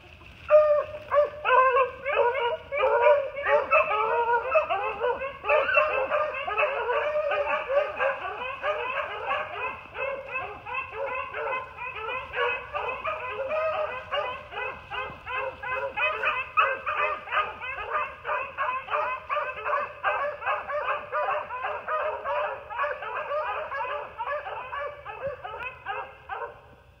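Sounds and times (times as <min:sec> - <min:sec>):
pack of hounds baying and barking: 0:00.0 - 0:26.8.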